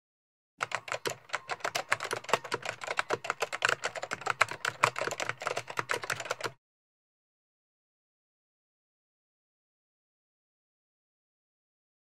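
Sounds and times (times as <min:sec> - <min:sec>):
rapid keyboard typing: 0:00.6 - 0:06.6.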